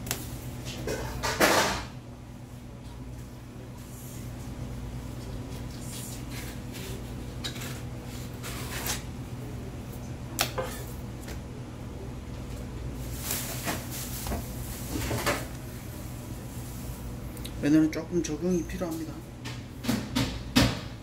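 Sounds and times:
steady low hum: 0:00.0 - 0:21.0
knocks on cutting board: 0:19.9 - 0:20.9.

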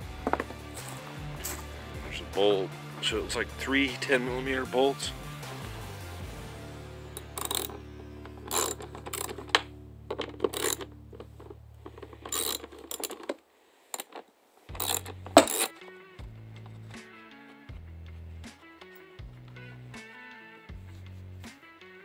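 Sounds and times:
low background music: 0:00.0 - 0:13.1, 0:14.7 - 0:22.0
ratchet clicking: 0:07.2 - 0:11.3, 0:11.9 - 0:13.3, 0:14.0 - 0:15.7.

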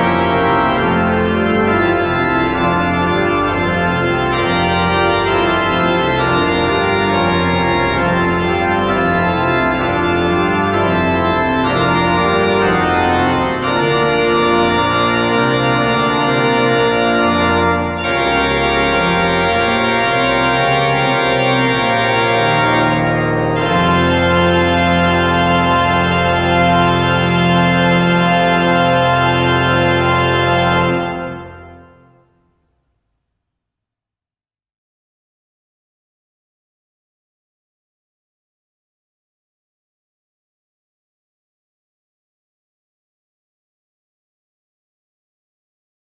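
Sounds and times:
pipe organ sustained chords: 0:00.0 - 0:32.3.

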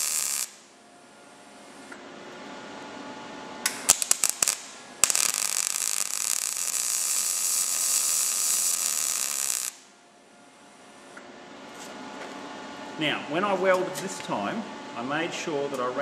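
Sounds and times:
welding arc crackling: 0:00.0 - 0:00.7, 0:03.7 - 0:09.9.

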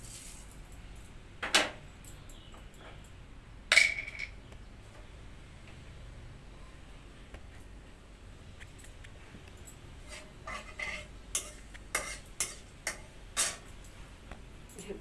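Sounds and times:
metal ladle scraping a metal pan: 0:10.0 - 0:13.6.

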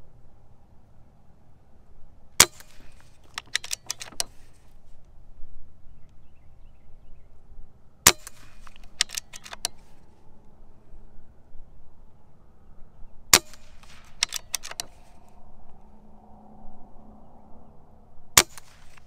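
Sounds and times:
air rifle shot crack: 0:02.4 - 0:04.4, 0:08.1 - 0:09.9, 0:13.3 - 0:15.2, 0:18.4 - 0:19.0
rifle bolt metallic clicks: 0:02.4 - 0:04.7, 0:08.1 - 0:10.0, 0:13.3 - 0:15.3, 0:18.4 - 0:19.0.

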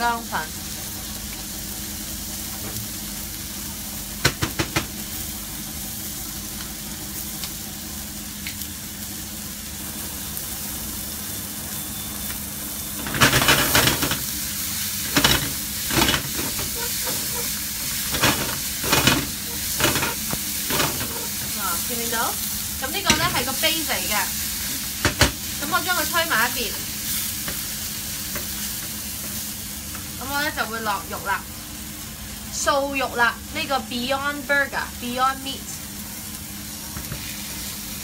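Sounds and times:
vegetables sizzling in a frying pan: 0:00.0 - 0:38.0
spatula scraping a pan: 0:15.2 - 0:21.4.

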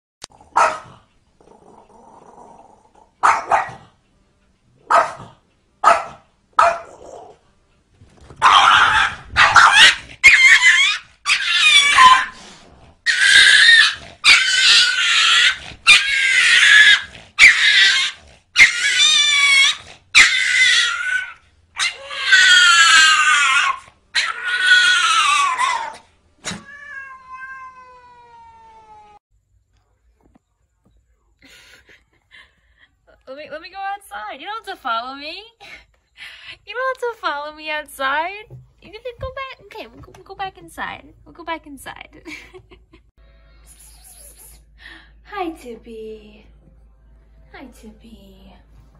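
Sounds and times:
small dog yapping: 0:00.6 - 0:01.0, 0:03.2 - 0:03.8, 0:04.9 - 0:07.3, 0:08.4 - 0:12.4, 0:13.1 - 0:27.7
loud wavering cries: 0:08.6 - 0:12.3, 0:13.1 - 0:26.0.

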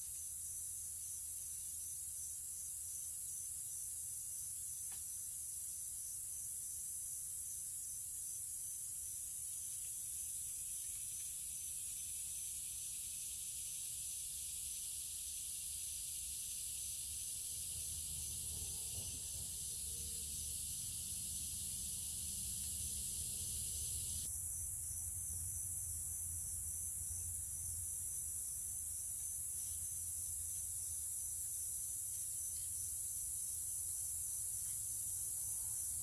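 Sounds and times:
steady hiss: 0:09.3 - 0:27.7.

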